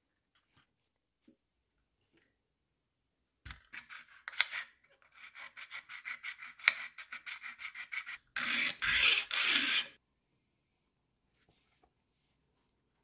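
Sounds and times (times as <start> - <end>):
sanding stick scraping: 3.8 - 10.0.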